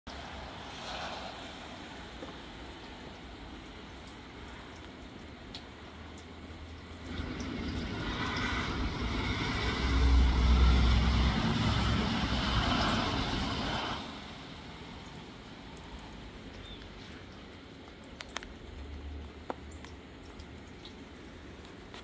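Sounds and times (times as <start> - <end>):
vehicle passing on wet road: 0.1 - 17.4
steady rain: 0.1 - 22.0.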